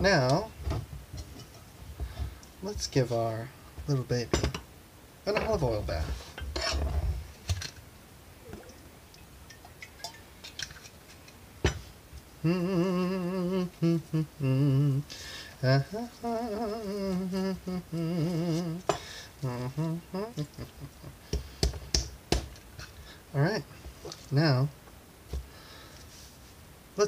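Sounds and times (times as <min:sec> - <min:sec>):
man humming: 0:12.4 - 0:21.3.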